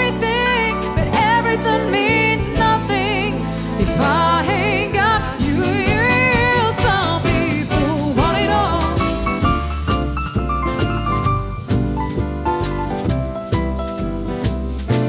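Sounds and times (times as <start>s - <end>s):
woman singing with vibrato: 0.0s - 9.4s
keyboard-led band backing: 0.0s - 15.0s.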